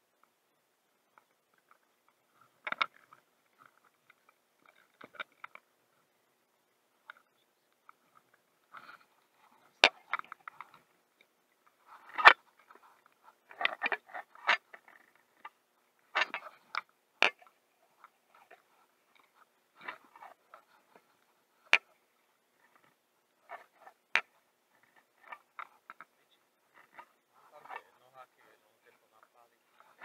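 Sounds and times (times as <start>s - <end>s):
fishing gear clicks and crackles: 1.1s - 5.8s, 7.0s - 30.0s.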